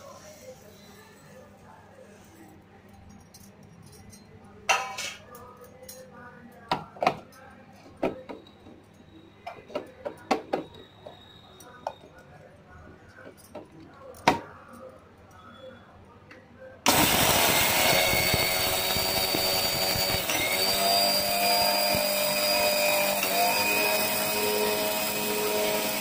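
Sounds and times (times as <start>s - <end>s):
mixer grinder whining: 16.9s - 26.0s.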